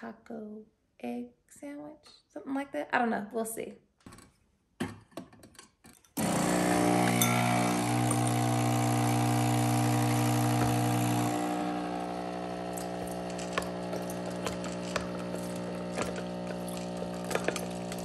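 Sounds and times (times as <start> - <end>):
espresso machine pump buzzing: 6.2 - 18.0.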